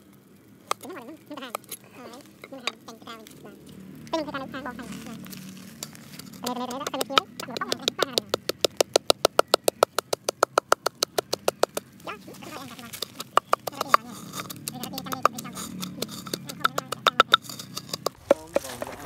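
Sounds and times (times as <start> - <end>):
pestle pounding in wooden mortar: 4.1 - 19.0.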